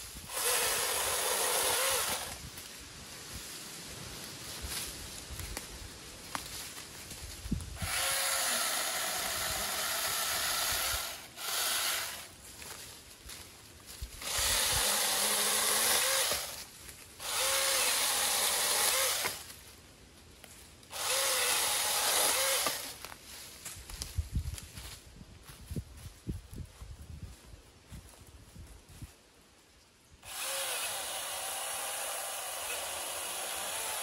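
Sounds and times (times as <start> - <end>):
chainsaw cutting branches: 0.0 - 2.6, 7.7 - 12.8, 14.1 - 19.6, 20.9 - 23.2, 30.2 - 34.0.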